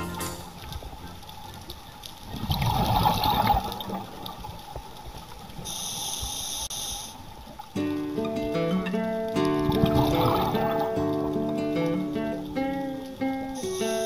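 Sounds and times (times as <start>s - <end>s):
underwater air bubbles rushing: 2.2s - 5.6s, 9.3s - 13.6s.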